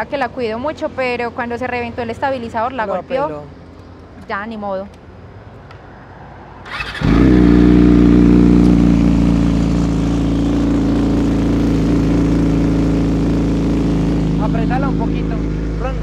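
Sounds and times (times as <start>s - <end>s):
motorcycle starter cranking: 6.7s - 9.4s
motorcycle engine idling: 6.7s - 16.0s.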